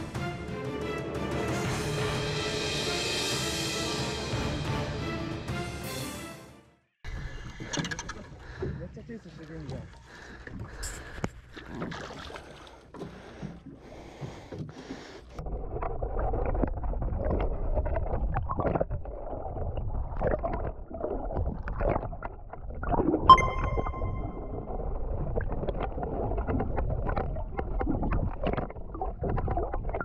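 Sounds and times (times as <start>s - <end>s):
wind: 7.0s - 15.4s
water rushing and bubbling: 11.6s - 30.0s
short ringing ding: 23.3s - 24.5s.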